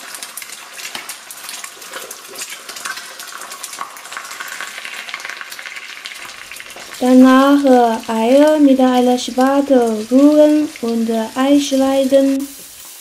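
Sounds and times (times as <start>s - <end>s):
eggs sizzling in hot oil: 0.0s - 13.0s
oil crackling and popping: 0.0s - 13.0s.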